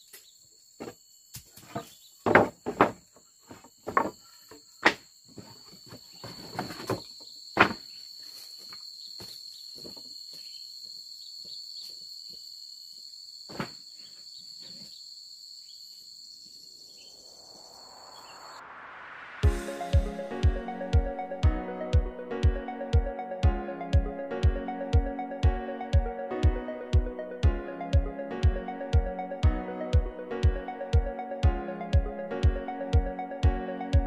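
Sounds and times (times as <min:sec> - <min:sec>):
insects chirping: 0:00.0 - 0:19.4
sharp knocks and thumps: 0:00.8 - 0:07.9
rising whoosh: 0:17.1 - 0:19.8.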